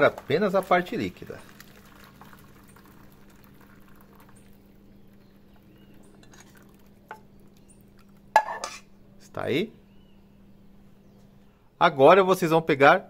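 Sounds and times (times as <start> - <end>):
liquid trickling through a sieve: 0.0 - 8.3
steady low hum: 0.0 - 11.8.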